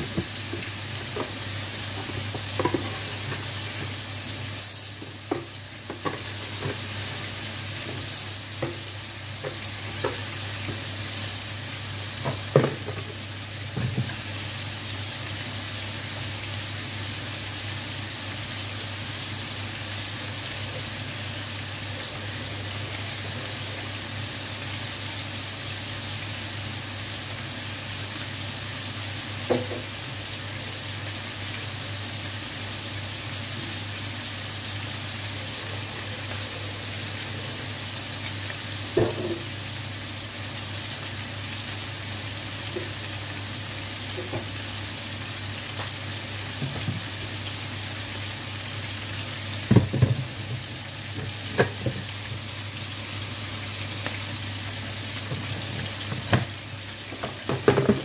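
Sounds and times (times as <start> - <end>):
chicken frying in hot oil: 0.0 - 58.0.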